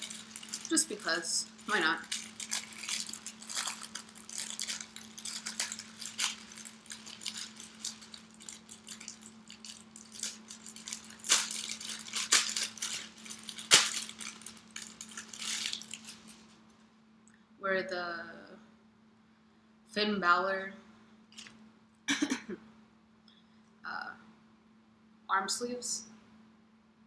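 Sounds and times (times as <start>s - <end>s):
packaging crinkling and tearing: 0.0s - 16.6s
sharp snaps of packaging: 2.1s - 16.2s.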